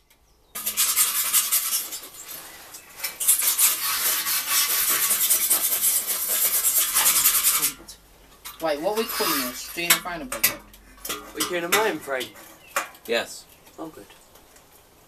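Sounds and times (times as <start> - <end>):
tool scraping metal: 0.6 - 7.9, 8.8 - 13.0.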